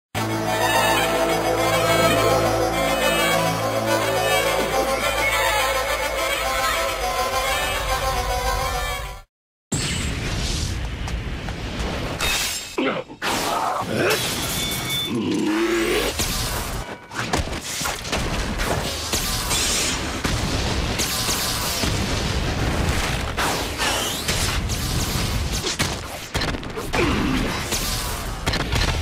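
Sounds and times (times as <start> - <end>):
booms and crashes: 17.4 - 29.0.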